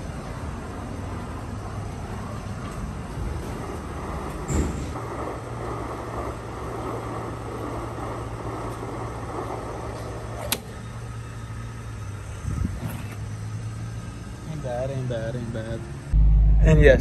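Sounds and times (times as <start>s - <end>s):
steady low hum: 0.0s - 17.0s
fuel nozzle shutoff click: 10.4s - 10.8s.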